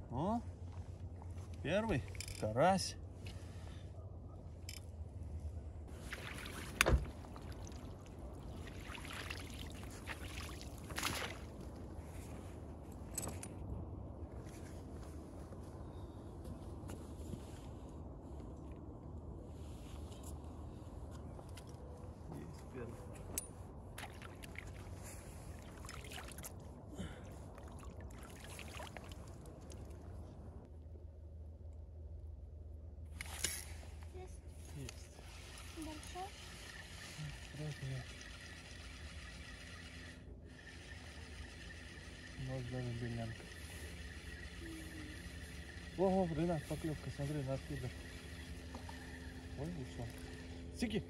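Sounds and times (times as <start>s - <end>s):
water splashing and dripping from net: 5.9s - 11.6s, 24.0s - 26.6s, 27.5s - 30.1s
water splashing and trickling: 5.9s - 12.4s, 23.9s - 30.7s, 34.5s - 51.0s.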